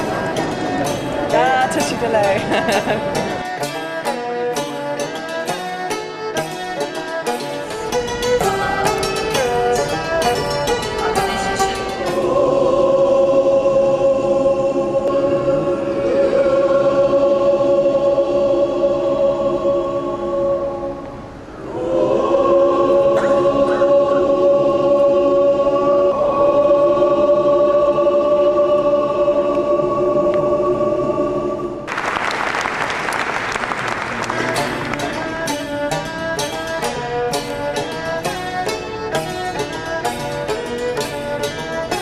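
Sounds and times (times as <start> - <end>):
instrumental music: 0.0 - 16.2, 33.0 - 42.0
applause: 31.9 - 35.1.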